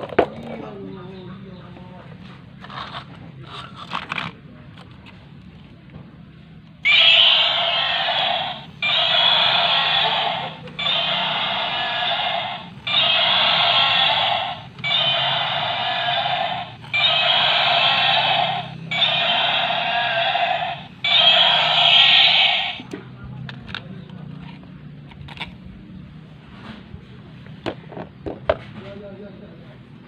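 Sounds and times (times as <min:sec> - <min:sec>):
toy electronic roar: 0:06.8 - 0:22.9.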